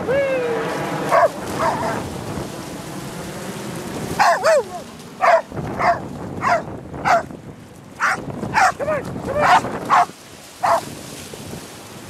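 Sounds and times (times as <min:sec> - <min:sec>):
surf and splashing water: 0:00.0 - 0:12.0
dog barking: 0:01.1 - 0:02.0, 0:04.2 - 0:07.3, 0:08.0 - 0:10.8.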